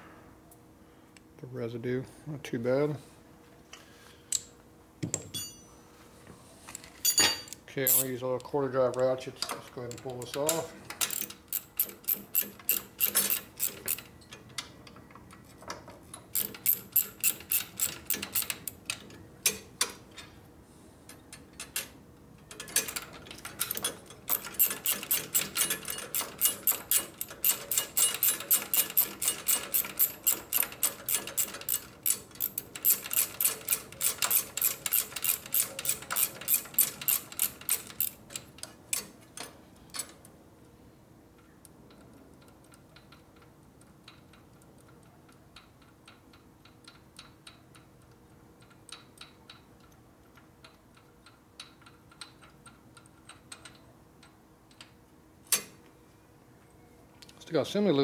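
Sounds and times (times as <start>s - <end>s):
ratchet clicking: 9.9s - 14.1s, 16.4s - 19.6s, 22.5s - 39.1s.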